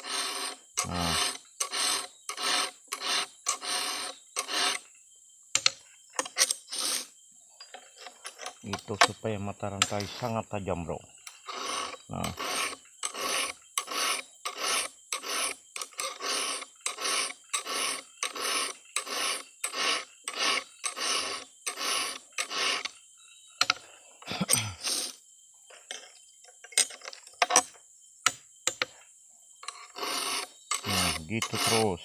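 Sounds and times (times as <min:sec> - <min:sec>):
file rasping on saw chain: 0:00.0 - 0:04.9, 0:06.2 - 0:07.1, 0:07.8 - 0:10.4, 0:11.2 - 0:23.0, 0:24.8 - 0:25.2, 0:29.6 - 0:32.0.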